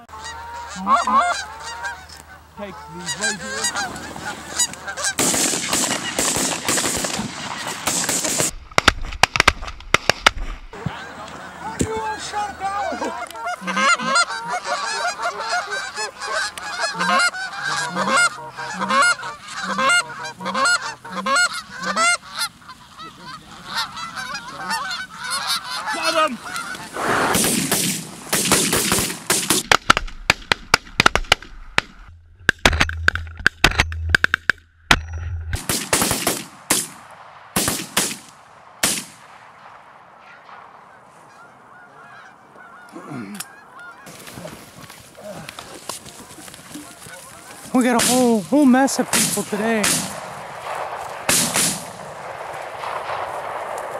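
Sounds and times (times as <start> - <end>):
geese honking: 0.0 - 8.5, 10.7 - 29.6, 40.2 - 53.9
shotgun bangs: 49.1 - 53.8.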